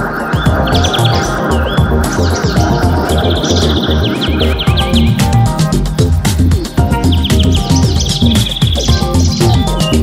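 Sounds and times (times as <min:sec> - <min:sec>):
bird trilling: 0:00.0 - 0:10.0
electronic music with steady beat: 0:00.0 - 0:10.0.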